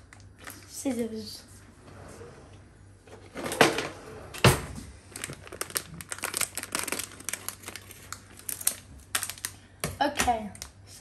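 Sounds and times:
packet crinkling: 5.0 - 9.7.

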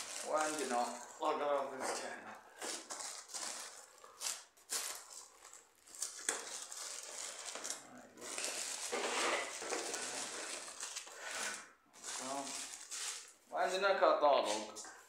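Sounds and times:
plastic bag crinkling: 0.0 - 1.5, 2.7 - 13.4
cardboard box rustling and scraping: 8.4 - 10.9.

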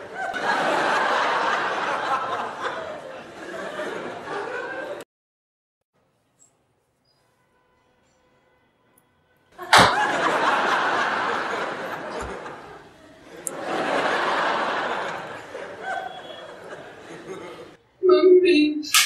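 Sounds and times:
crowd laughing: 0.0 - 5.0, 9.6 - 17.8.

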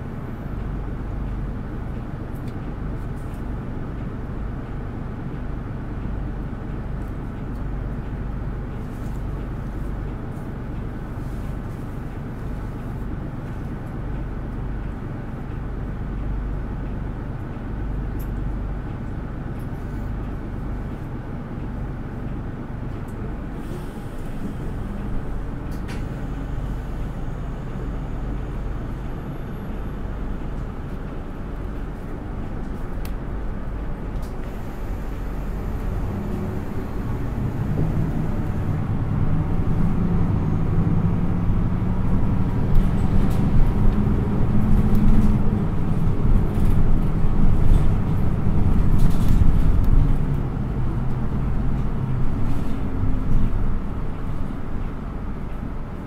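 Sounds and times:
bus diesel engine drone: 0.0 - 56.0
road noise: 18.4 - 56.0.

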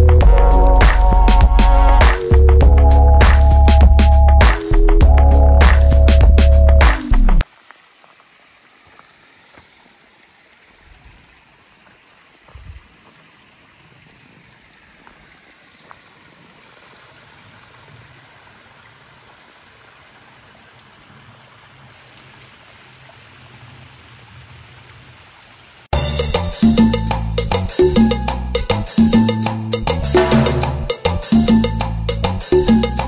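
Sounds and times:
lower water rush: 5.6 - 25.9
stream running over rocks: 6.9 - 26.0.

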